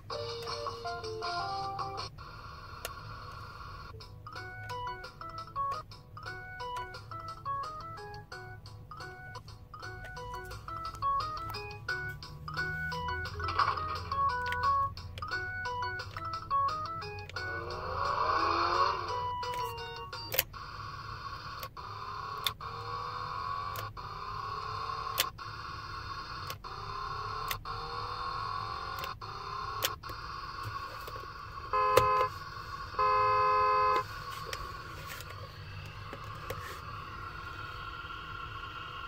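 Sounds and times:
electronic toy engine sound: 12.5s - 32.2s, 35.5s - 39.0s.

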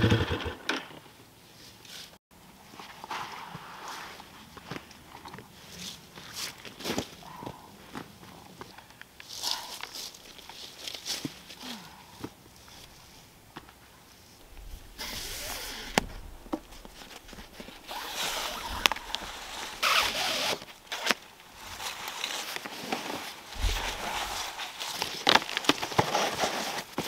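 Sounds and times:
canvas rustling: 14.1s - 27.0s
cargo net stretching: 14.4s - 26.9s.

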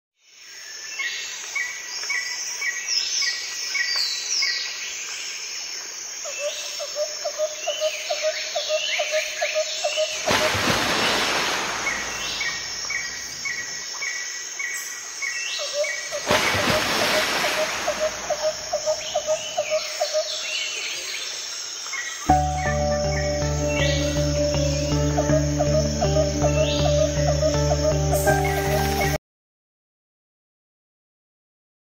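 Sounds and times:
birds chirping: 7.7s - 29.2s
low pulsing bird call: 15.6s - 20.3s, 22.3s - 29.2s.

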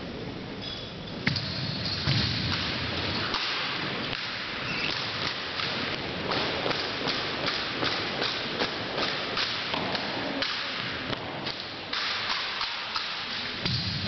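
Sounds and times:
sharp crack: 1.3s - 14.0s
hands slapping rifles: 11.4s - 13.3s.

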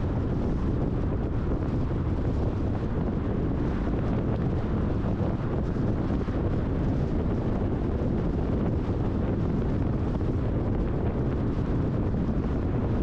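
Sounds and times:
car road noise: 0.0s - 13.0s.

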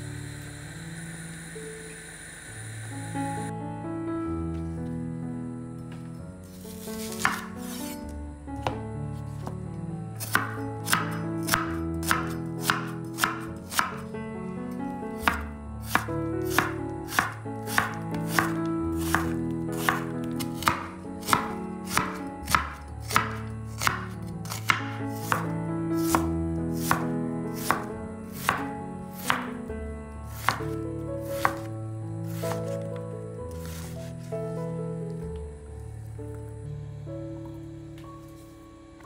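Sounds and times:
knife chopping on wooden board: 7.0s - 7.9s, 10.2s - 14.0s, 15.2s - 29.5s, 30.3s - 31.7s, 32.3s - 32.8s.

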